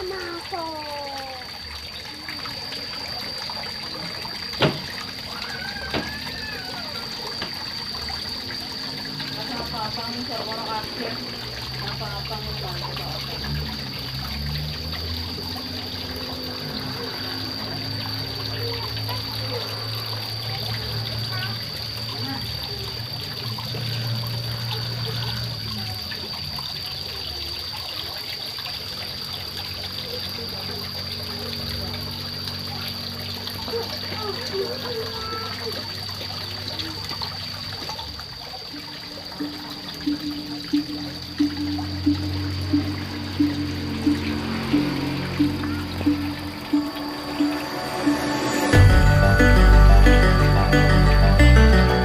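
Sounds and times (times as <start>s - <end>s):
water trickling into pond: 0.0s - 50.7s
high-pitched tone: 39.4s - 52.0s.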